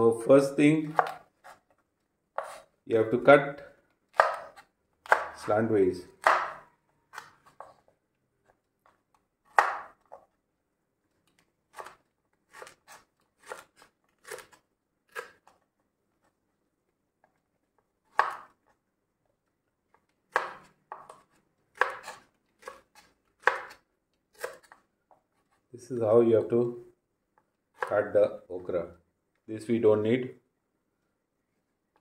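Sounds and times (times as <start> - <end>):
knife cutting on wooden board: 0.8 - 1.7, 2.3 - 2.8, 4.1 - 5.4, 11.7 - 15.6, 18.1 - 18.7, 20.3 - 25.6, 27.8 - 28.1.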